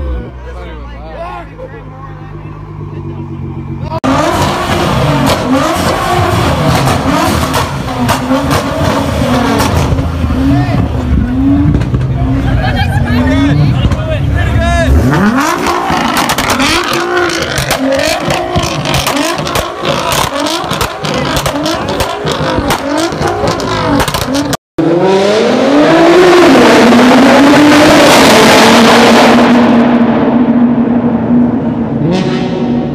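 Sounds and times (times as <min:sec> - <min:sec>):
car engine at full throttle in tunnel: 0:02.4 - 0:32.9
exhaust crackles: 0:02.7 - 0:24.6
car engine revving in blips: 0:03.4 - 0:12.5, 0:13.3 - 0:32.9.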